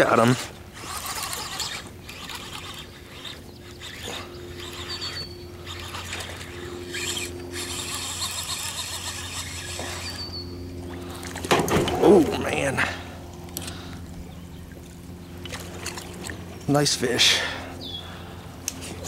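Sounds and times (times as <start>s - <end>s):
fishing reel cranking: 0.2s - 11.4s.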